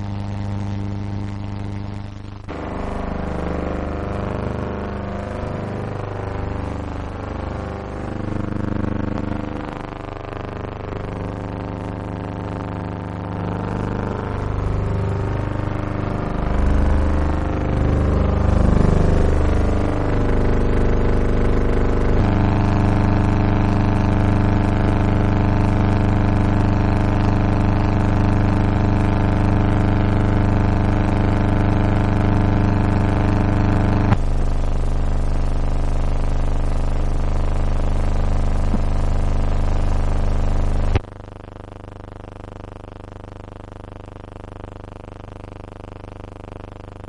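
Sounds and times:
sustained droning chords: 0:02.5 - 0:22.8.

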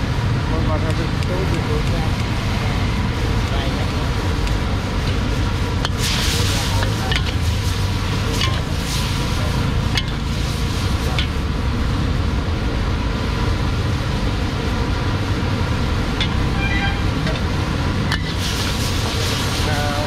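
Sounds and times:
gas burner rushing: 0:00.1 - 0:20.0
food frying: 0:00.8 - 0:20.0
metal spatula scraping wok: 0:04.9 - 0:11.5, 0:16.2 - 0:19.7.

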